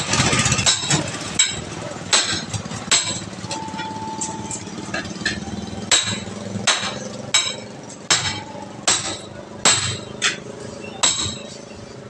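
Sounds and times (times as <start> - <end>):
hammer striking steel tyre iron: 0.0 - 11.7.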